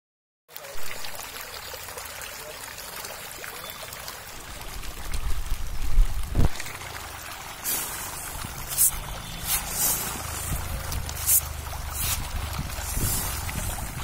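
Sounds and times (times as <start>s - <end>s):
fish splashing at water surface: 3.3s - 14.0s.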